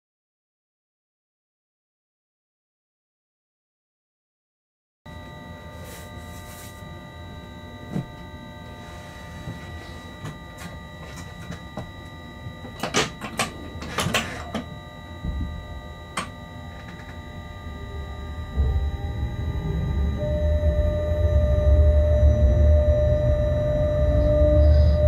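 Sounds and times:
electrical whine and hum: 5.1 - 25.0
locomotive low rumble: 16.7 - 25.0.

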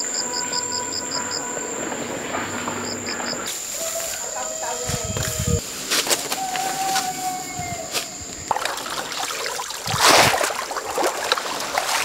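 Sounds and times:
muddy water sloshing and splashing: 8.5 - 12.0.

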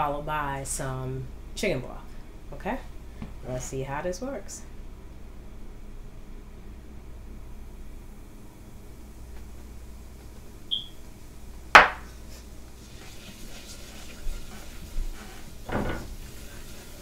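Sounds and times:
whisk scraping pan: 12.3 - 17.0.

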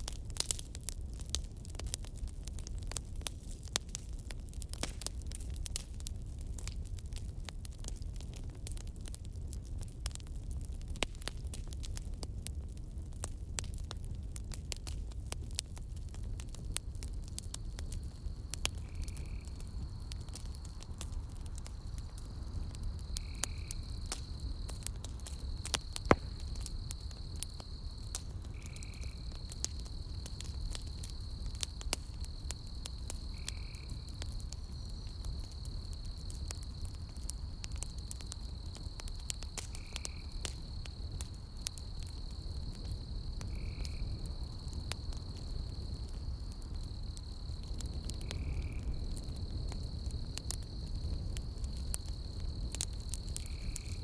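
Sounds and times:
campfire crackling and popping: 0.0 - 54.0
insect trill: 16.8 - 54.0.

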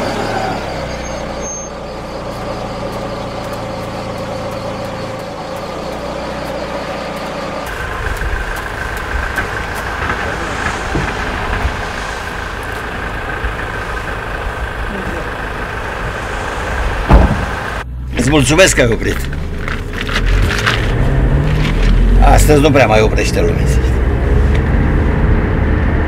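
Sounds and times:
faint steady high tone: 0.0 - 8.0
van engine idling: 0.0 - 20.7.

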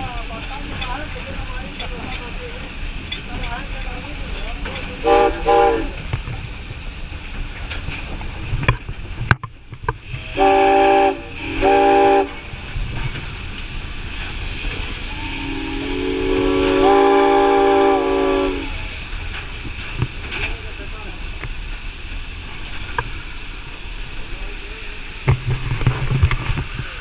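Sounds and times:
steam hiss: 0.0 - 9.2, 9.9 - 27.0
steam locomotive whistle: 5.0 - 6.0, 10.1 - 12.4, 15.0 - 19.0.

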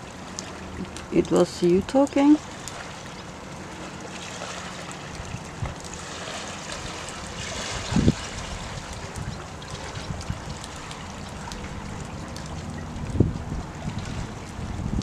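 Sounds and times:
waves washing over pebbles: 0.0 - 15.0
wind on microphone: 5.1 - 15.0.

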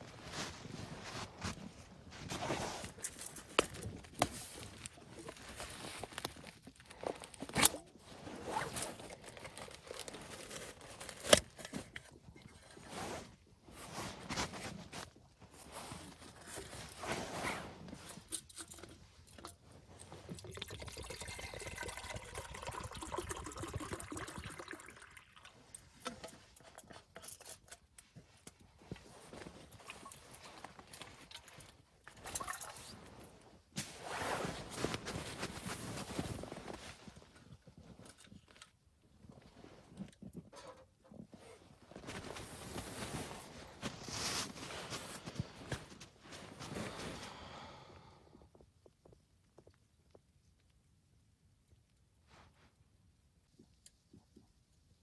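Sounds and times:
liquid pouring: 20.3 - 25.7.

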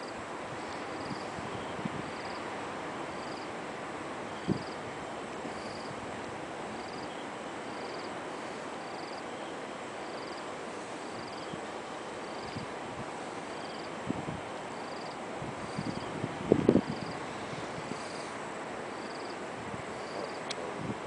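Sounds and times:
outdoor noise hiss: 0.0 - 21.0
insect chirping trill: 0.6 - 2.4, 6.8 - 8.1, 8.8 - 9.2, 10.0 - 10.4, 14.8 - 16.1, 18.9 - 19.4.

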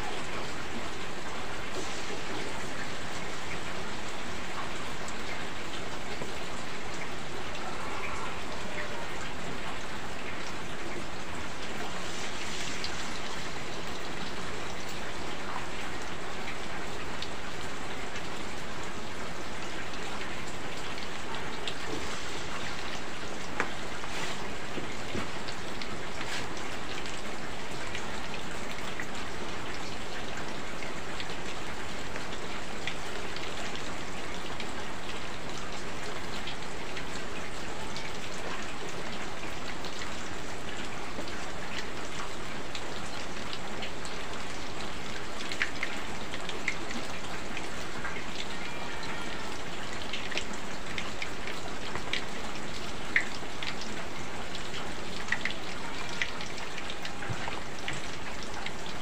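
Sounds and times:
heavy rain: 0.0 - 59.0
oil sizzling in a wok: 11.9 - 13.6.

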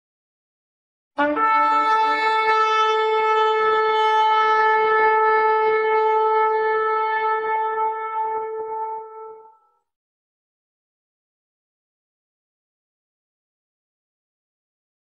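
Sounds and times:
shofar blast: 1.2 - 9.7.

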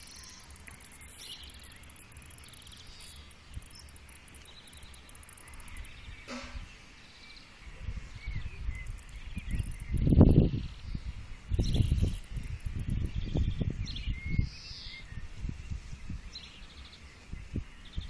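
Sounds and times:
cicadas buzzing: 0.0 - 6.4, 8.6 - 13.4
bird chirps: 0.0 - 7.6, 8.2 - 15.2.

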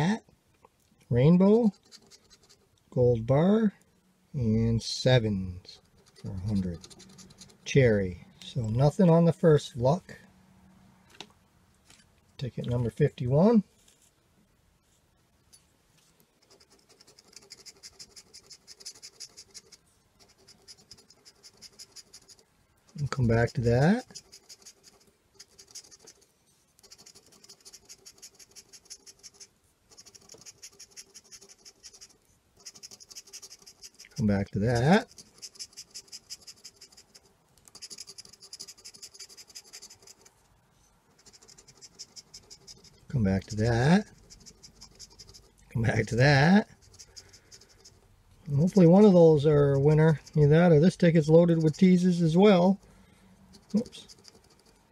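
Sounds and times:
scratch ticket scraping: 1.4 - 2.7, 5.6 - 8.0, 16.4 - 40.4, 41.1 - 52.8, 53.5 - 54.9.

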